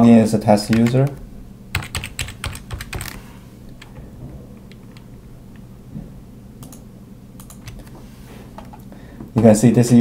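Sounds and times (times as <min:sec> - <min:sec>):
low steady hum: 0:00.0 - 0:10.0
keyboard and mouse clicks: 0:06.6 - 0:06.8, 0:07.4 - 0:08.0.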